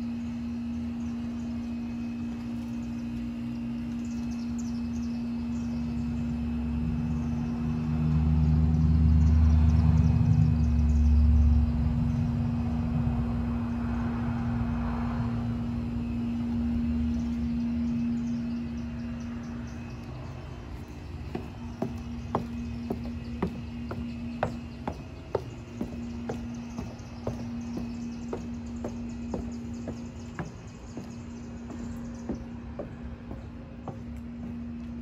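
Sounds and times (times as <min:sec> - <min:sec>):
steady low hum: 0:00.0 - 0:35.0
birds chirping: 0:00.5 - 0:09.4, 0:16.0 - 0:35.0.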